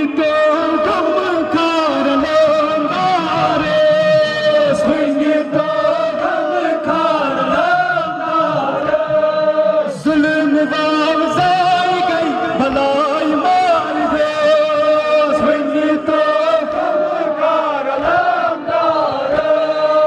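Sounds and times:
man chanting a lament over loudspeakers: 0.0 - 18.0.

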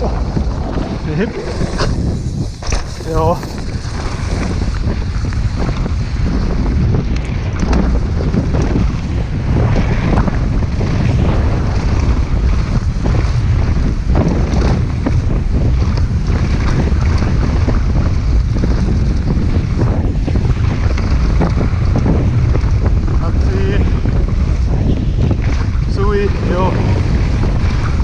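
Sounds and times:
bike clattering over bumps: 0.0 - 28.0
wind rumble on microphone: 0.0 - 28.0.

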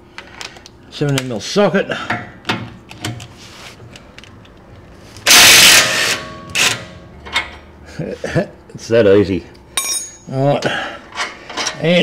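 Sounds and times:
impact wrench hammering: 9.8 - 10.3.

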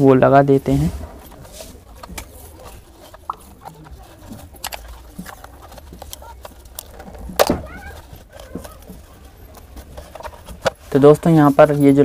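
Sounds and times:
adhesive tape crackling: 1.1 - 11.0
small handling clicks: 1.9 - 10.8.

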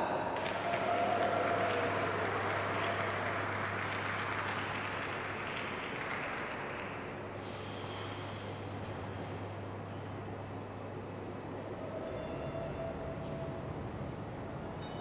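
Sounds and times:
audience applause: 0.0 - 7.4
steady low hum: 0.0 - 15.0.

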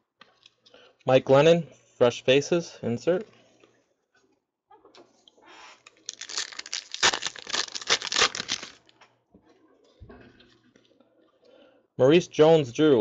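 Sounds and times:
cards rustling: 5.9 - 8.9
foil pack tearing and crinkling: 5.9 - 8.9.

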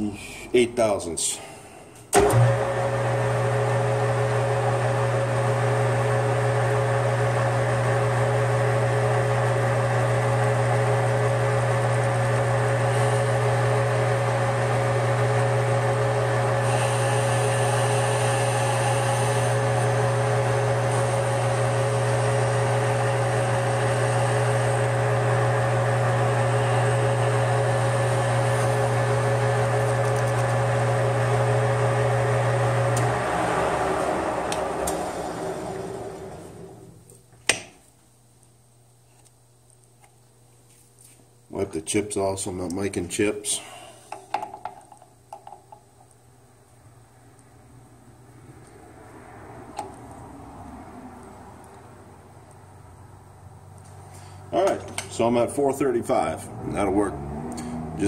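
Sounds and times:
metal lathe humming and whining: 2.2 - 36.9.

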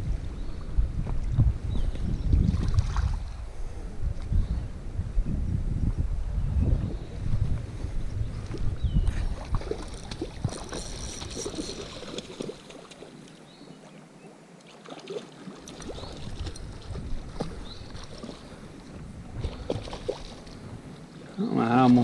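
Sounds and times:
wind buffeting microphone: 0.0 - 12.4, 15.8 - 22.0.

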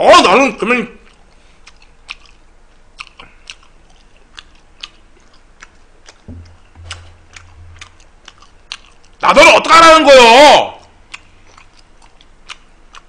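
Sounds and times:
man chewing food: 1.0 - 9.2, 10.8 - 13.0
low steady hum: 1.0 - 9.4.

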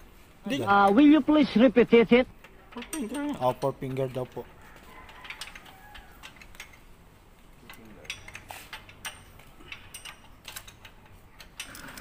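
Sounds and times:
steel parts clinking: 0.4 - 12.0
wrench clicking on a bolt: 5.0 - 6.9, 7.6 - 12.0.

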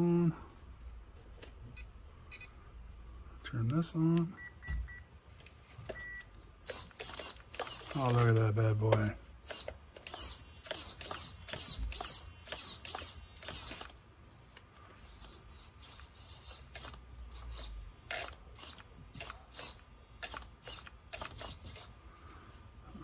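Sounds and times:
steering servo whining chirps: 5.9 - 8.3, 9.4 - 14.0, 14.9 - 22.2.

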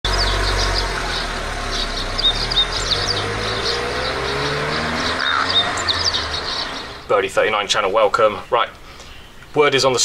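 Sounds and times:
birds chirping: 0.0 - 10.0
passing car rumble: 0.1 - 7.1.

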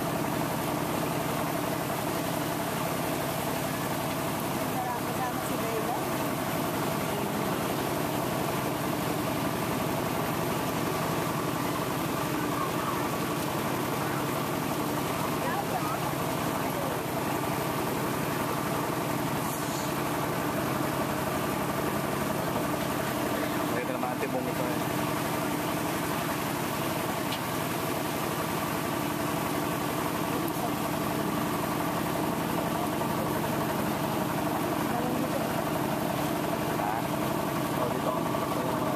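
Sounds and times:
vehicle engine running: 0.0 - 38.9
water washing along vehicle: 0.0 - 38.9.

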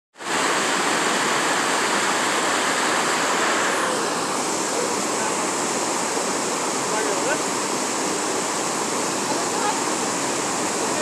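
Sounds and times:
waterfall rushing: 0.2 - 11.0.

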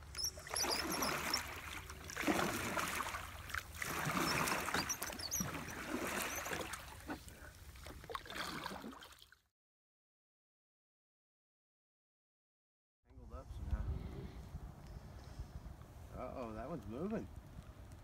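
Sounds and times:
oars splashing in water: 0.0 - 9.4.

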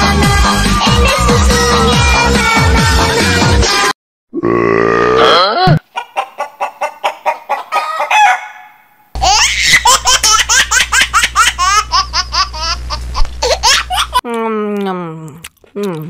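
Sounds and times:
chicken clucking: 5.9 - 8.8
high-pitched laughter: 9.2 - 14.2.

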